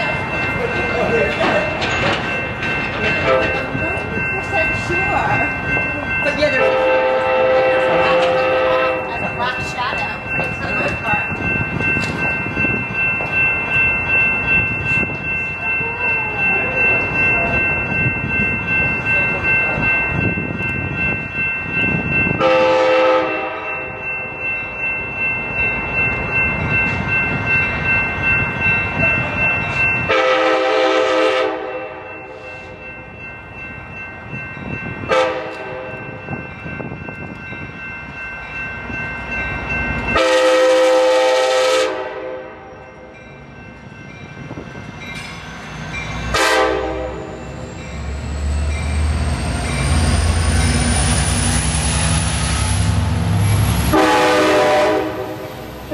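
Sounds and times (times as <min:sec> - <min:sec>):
steady high ringing: 0:00.0 - 0:55.9
train rumbling past: 0:00.0 - 0:55.9
train air horn blasts: 0:06.7 - 0:09.0, 0:22.4 - 0:23.8, 0:30.1 - 0:32.0, 0:35.1 - 0:35.9, 0:40.2 - 0:42.6, 0:46.3 - 0:47.3, 0:53.9 - 0:55.5.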